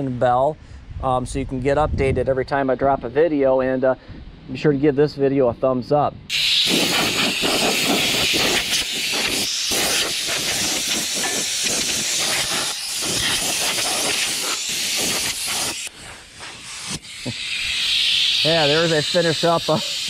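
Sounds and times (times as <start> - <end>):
compressed air hissing from nozzle: 6.3 - 20.0.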